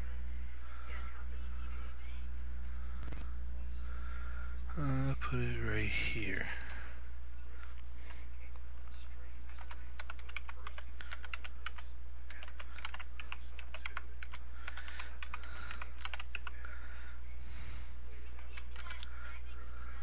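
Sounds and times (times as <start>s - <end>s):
low electrical hum: 0.0s - 20.0s
keyboard keystroke clicks: 9.5s - 16.6s, 18.4s - 19.1s.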